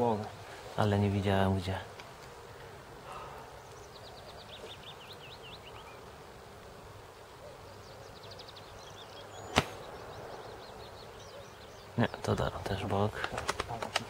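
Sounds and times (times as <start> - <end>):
airsoft rifle shot: 9.5 - 9.9.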